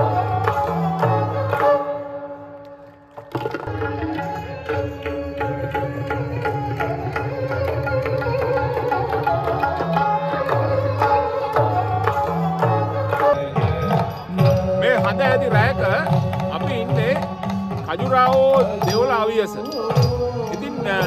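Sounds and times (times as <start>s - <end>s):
fast tabla strokes: 2.8s - 21.0s
sustained melody: 12.3s - 21.0s.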